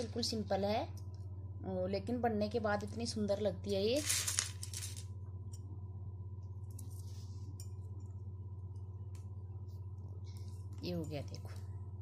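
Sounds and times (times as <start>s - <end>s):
steady low hum: 0.0s - 12.0s
plastic beads rustling: 3.9s - 5.1s.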